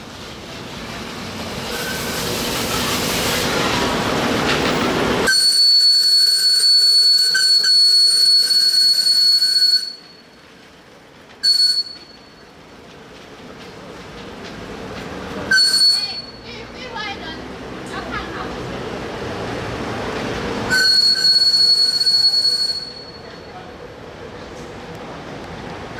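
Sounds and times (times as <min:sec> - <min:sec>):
rushing steam: 0:00.0 - 0:25.9
steam whistle blowing: 0:01.7 - 0:02.3, 0:05.2 - 0:10.1, 0:11.4 - 0:12.2, 0:15.5 - 0:16.4, 0:20.7 - 0:23.2.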